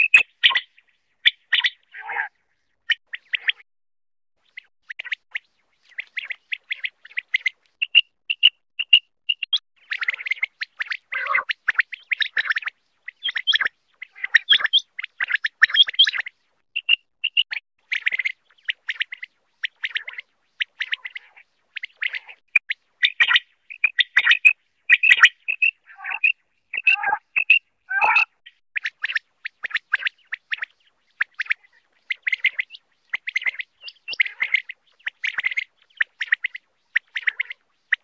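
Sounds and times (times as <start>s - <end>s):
quail chirping: 0.0s - 2.3s, 2.9s - 3.6s, 4.4s - 38.0s.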